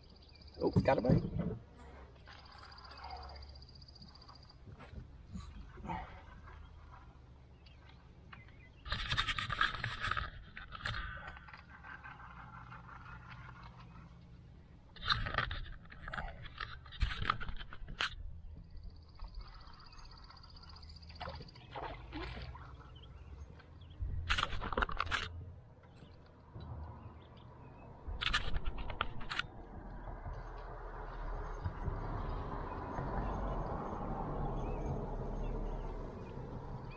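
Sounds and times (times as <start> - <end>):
scrapes and clicks on plastic: 7.7 - 14.3, 14.9 - 18.2, 24.2 - 25.4, 28.1 - 29.6.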